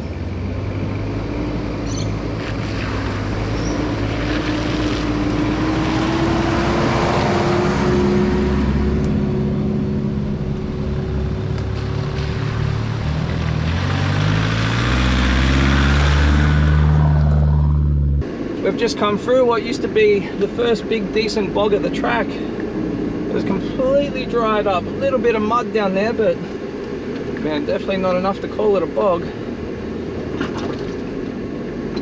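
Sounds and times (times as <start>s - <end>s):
engine running under load: 0.0s - 25.6s
tyre noise on dirt track: 1.3s - 9.0s, 10.3s - 22.5s.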